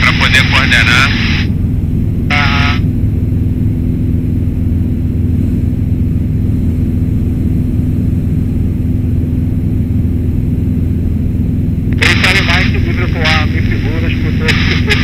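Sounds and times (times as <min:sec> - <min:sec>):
light airplane engine droning: 0:00.0 - 0:15.0.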